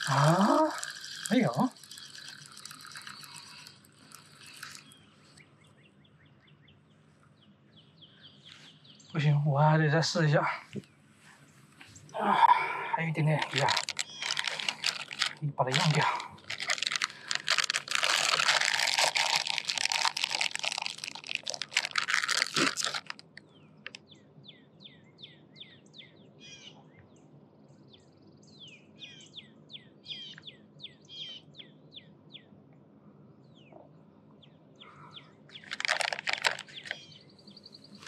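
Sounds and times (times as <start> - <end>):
plastic bag crinkling: 0.0 - 5.0, 13.2 - 24.0, 35.5 - 37.0
small bird chirping: 0.0 - 9.5, 13.2 - 32.5, 33.5 - 38.0.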